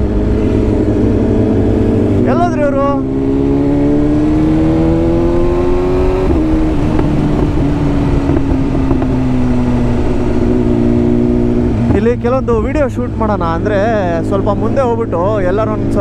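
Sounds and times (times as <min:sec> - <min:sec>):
motorcycle engine: 0:00.0 - 0:16.0
wind rushing over microphone: 0:00.0 - 0:16.0.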